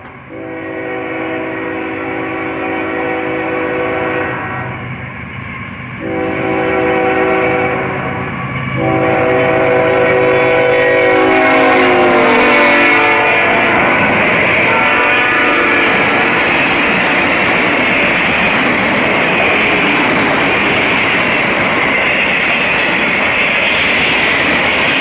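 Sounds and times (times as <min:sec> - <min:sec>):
locomotive horn blasts: 0:00.3 - 0:04.8, 0:06.0 - 0:14.0, 0:14.6 - 0:16.3
freight cars rolling by: 0:15.7 - 0:25.0.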